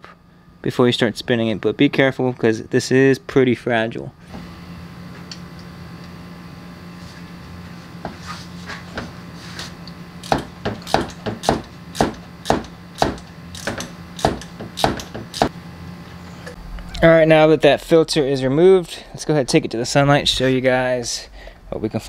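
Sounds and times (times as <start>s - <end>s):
steady low hum: 0.0s - 22.0s
ratchet clicking: 10.2s - 15.5s.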